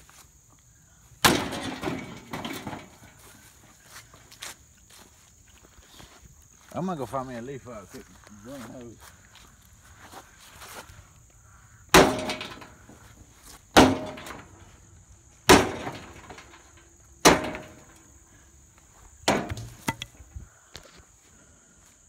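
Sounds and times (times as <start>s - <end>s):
sledgehammer striking metal grill: 11.9s - 12.8s, 13.8s - 14.5s, 15.4s - 18.0s, 19.3s - 20.1s
metal rattling: 19.3s - 20.3s.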